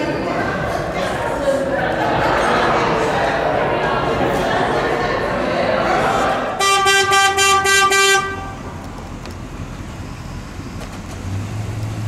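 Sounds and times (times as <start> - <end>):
car horn short toots: 6.6 - 8.6
low engine hum: 7.1 - 12.0.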